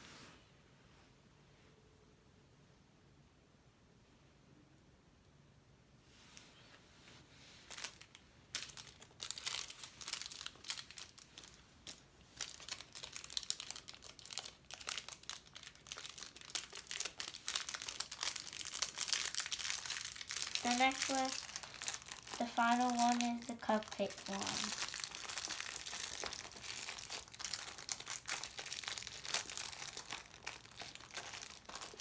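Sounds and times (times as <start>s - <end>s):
plastic bag crinkling: 7.6s - 32.0s.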